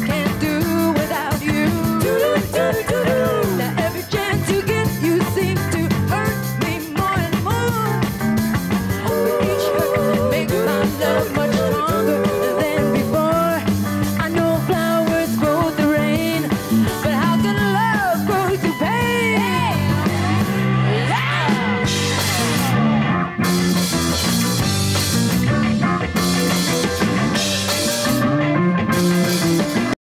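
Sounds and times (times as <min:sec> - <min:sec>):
woman singing: 0:00.0 - 0:08.0, 0:09.0 - 0:20.3
drums: 0:00.0 - 0:30.0
electric guitar: 0:00.0 - 0:30.0.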